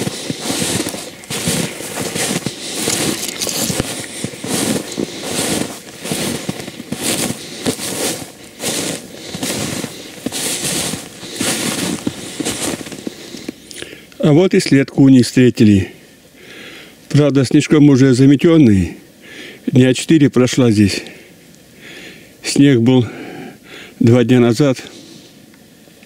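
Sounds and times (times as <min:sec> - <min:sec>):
branches brushing past: 0:00.0 - 0:13.1
footsteps crunching through snow: 0:00.0 - 0:13.7
twigs crackling: 0:00.0 - 0:14.3.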